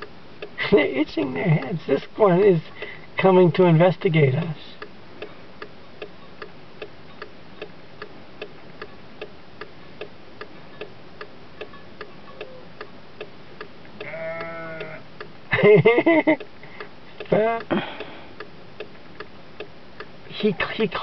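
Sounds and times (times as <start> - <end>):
car flasher relay ticking: 0.0 - 21.0
sheep bleating: 14.0 - 15.0.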